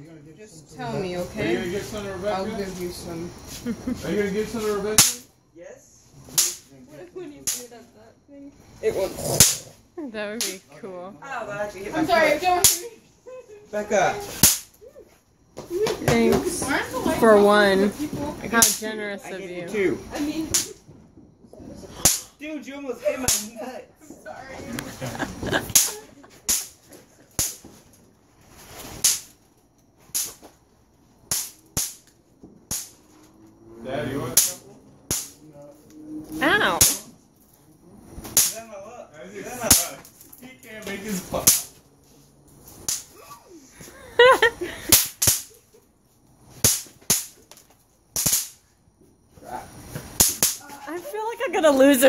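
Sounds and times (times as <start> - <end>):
bang snaps cracking: 9.4 - 9.7, 14.4 - 14.8, 22.0 - 22.4, 29.0 - 29.4, 30.1 - 30.5, 31.2 - 33.1, 34.4 - 35.4, 36.8 - 37.1, 38.2 - 38.6, 41.5 - 41.7, 42.8 - 43.1, 46.6 - 47.6, 48.2 - 48.6, 50.0 - 50.6.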